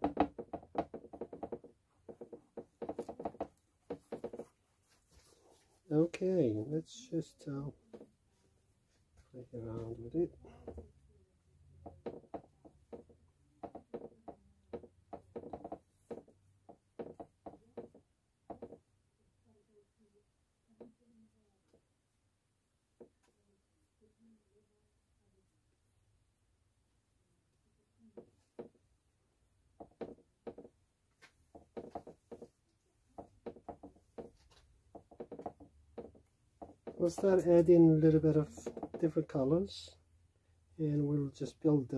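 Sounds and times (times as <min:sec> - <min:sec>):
paintbrush tapping on wet canvas: 0:00.0 - 0:05.7, 0:11.8 - 0:18.8, 0:29.8 - 0:39.1
paintbrush dabbing on canvas: 0:00.1 - 0:07.0.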